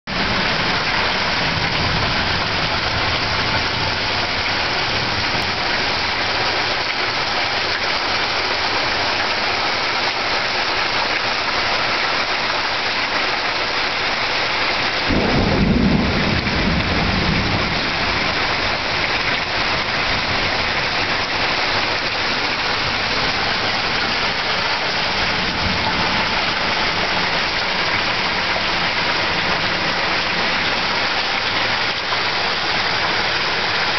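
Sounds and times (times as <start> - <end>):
heavy rain pouring: 0.0 - 33.9
thunder rumble: 15.0 - 21.8.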